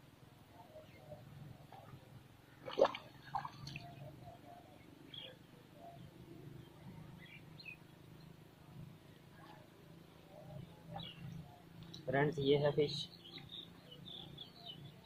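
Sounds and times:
water splashing: 0:02.6 - 0:04.0.

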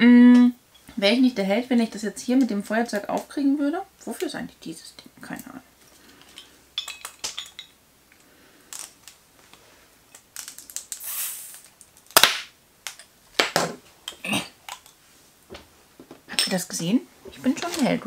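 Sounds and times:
glass clinks: 0:06.2 - 0:07.8
short hiss of carbonation: 0:10.9 - 0:11.8.

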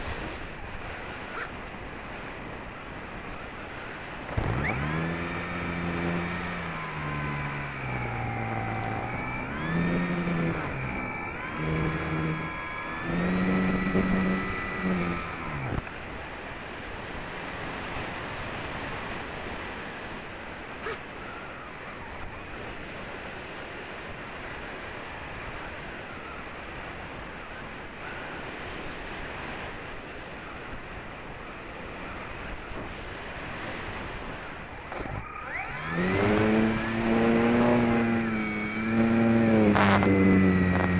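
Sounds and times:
electric motor whining: 0:02.7 - 0:16.5, 0:32.5 - 0:40.9.

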